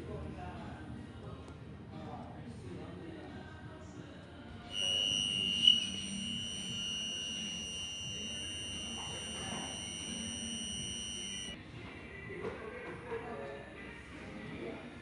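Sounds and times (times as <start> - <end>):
high-pitched warning buzzer: 4.7 - 11.6.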